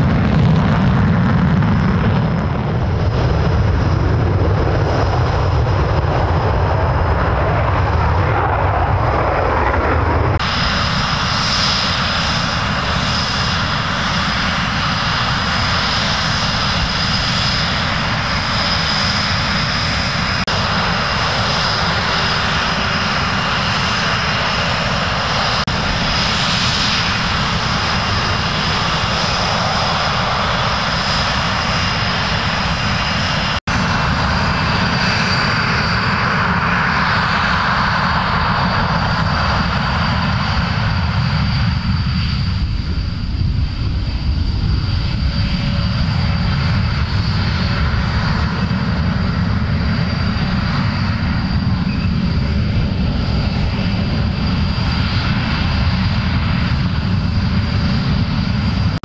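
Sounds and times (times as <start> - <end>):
high turbine whine: 0.0 - 59.0
jet engines rumbling: 0.0 - 59.0.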